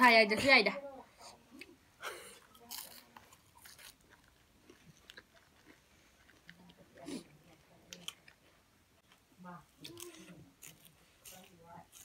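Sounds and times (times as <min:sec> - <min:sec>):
chewing and mouth clicks: 0:02.5 - 0:07.0.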